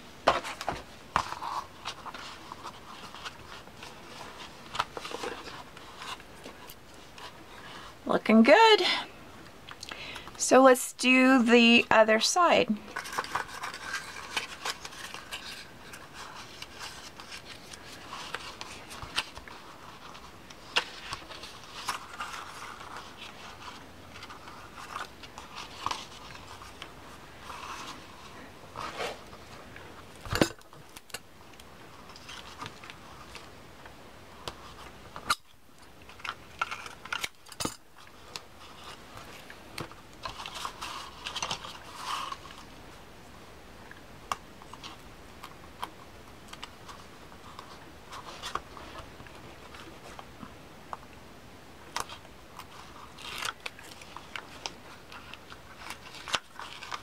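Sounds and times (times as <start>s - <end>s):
paper rustling and creasing: 0.0s - 9.0s, 12.4s - 43.0s, 44.6s - 50.5s, 51.8s - 57.0s.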